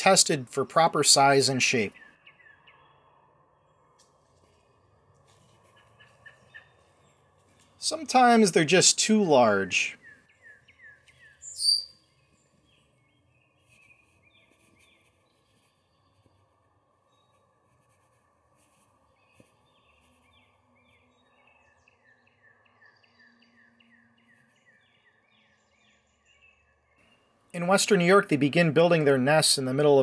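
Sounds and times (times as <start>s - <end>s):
wren chirping: 0.8s - 3.8s, 5.6s - 17.6s.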